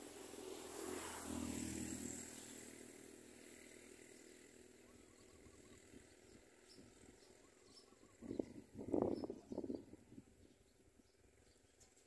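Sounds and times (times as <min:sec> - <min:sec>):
distant vehicle passing: 0:00.0 - 0:09.2
faint outdoor background: 0:00.0 - 0:12.0.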